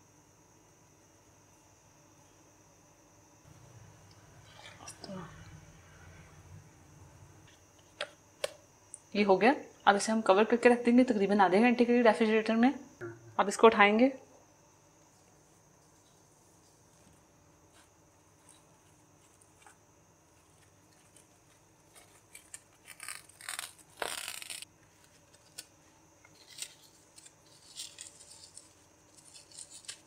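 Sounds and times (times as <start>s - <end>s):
plastic cling film crinkling: 20.4s - 30.0s
cling film ripping: 21.9s - 25.7s.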